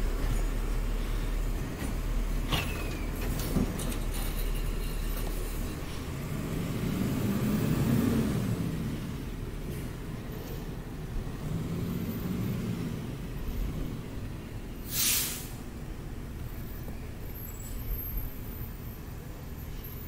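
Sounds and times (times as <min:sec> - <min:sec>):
garbage truck rumbling: 0:00.0 - 0:19.6
air brakes hiss: 0:14.8 - 0:15.7.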